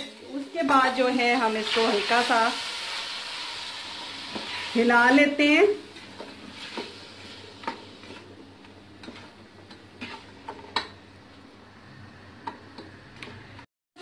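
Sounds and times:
vegetables sizzling in oil: 0.0s - 11.2s
spatula scraping and knocking pot: 9.0s - 11.0s.

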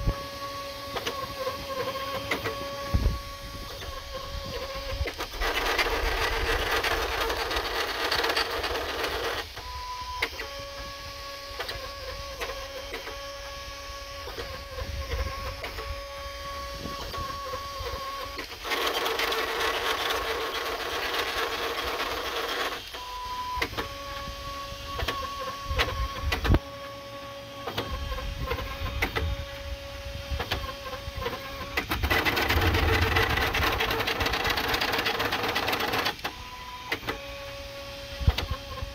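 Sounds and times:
stepper motors whining: 0.0s - 38.9s
printer rattling: 3.8s - 9.6s, 18.2s - 22.9s, 30.4s - 36.3s.

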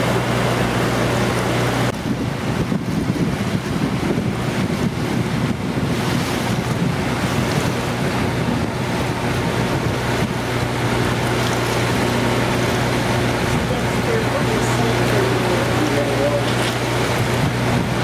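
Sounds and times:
boat engine humming: 0.0s - 18.0s
water rushing past hull: 0.0s - 18.0s
wind buffeting microphone: 0.0s - 18.0s.

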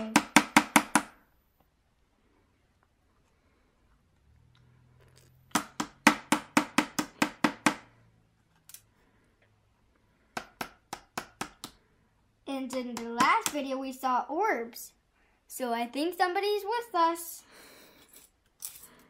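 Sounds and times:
hand tool tapping plaster: 10.4s - 11.8s.

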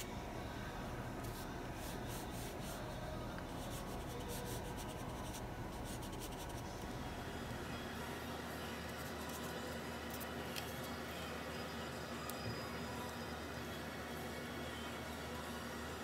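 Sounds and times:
paintbrush stroking paper: 1.2s - 2.8s, 3.5s - 6.6s.

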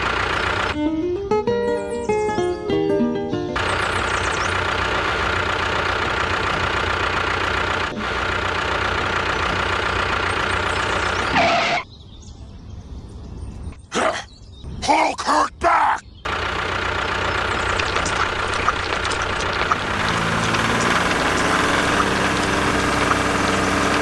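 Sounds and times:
tractor engine running: 0.0s - 0.8s, 3.6s - 11.8s, 16.2s - 24.0s.

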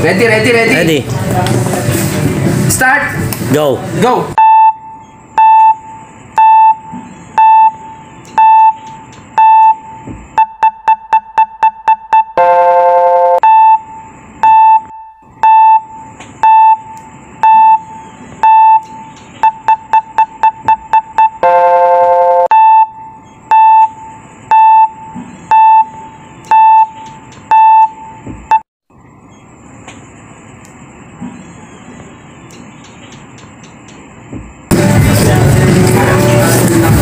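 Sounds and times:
timer beeps: 4.4s - 28.6s
long timer buzzer: 9.4s - 28.2s.

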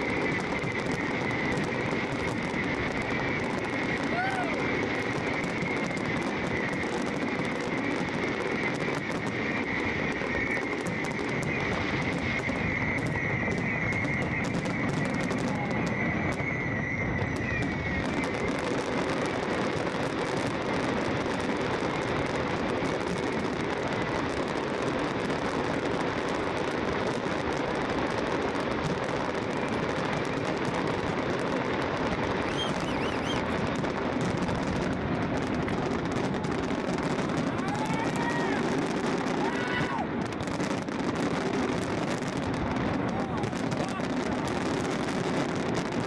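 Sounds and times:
thin firework whistle: 0.0s - 24.6s, 27.0s - 46.0s
fireworks crackling: 0.0s - 46.0s
fireworks shell bursts: 32.4s - 33.6s.

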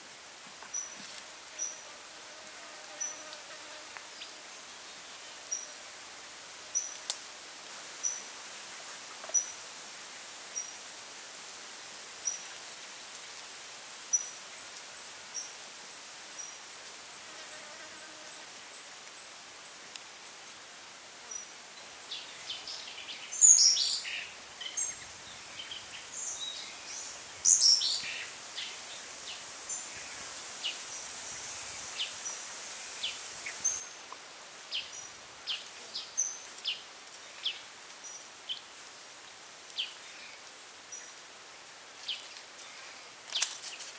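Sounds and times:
faint hiss: 0.0s - 43.9s
small birds chirping: 21.2s - 34.1s.

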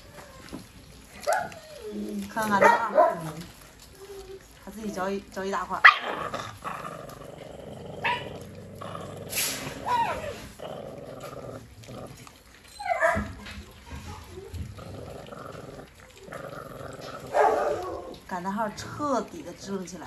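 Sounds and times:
puppies chewing meat: 0.0s - 20.0s
puppies growling: 0.0s - 20.0s
puppy yelps: 1.2s - 3.2s, 9.8s - 10.4s, 12.6s - 13.4s.

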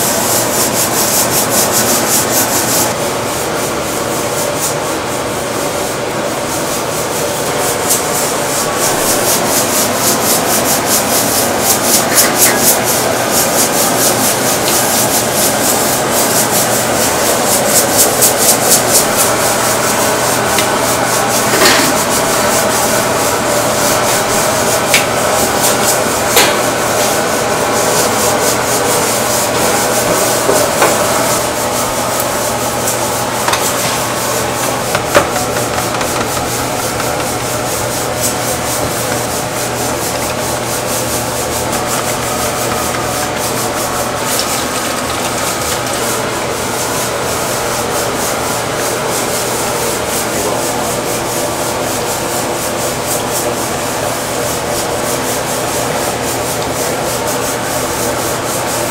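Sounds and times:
low kitchen hum: 0.0s - 58.9s
hand tool scraping pork skin: 32.7s - 45.9s
sharp knocks: 34.6s - 37.5s.

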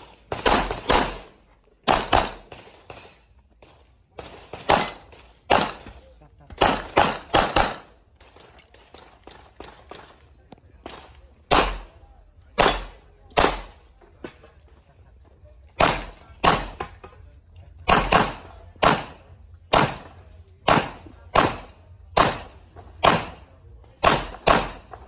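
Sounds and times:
handgun shots: 17.8s - 23.4s, 24.0s - 25.0s.

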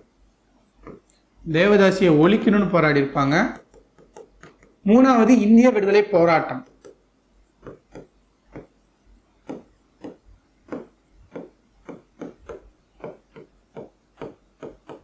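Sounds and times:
pen scratching and tapping on screen: 0.6s - 1.3s, 3.5s - 4.8s, 6.5s - 15.0s.

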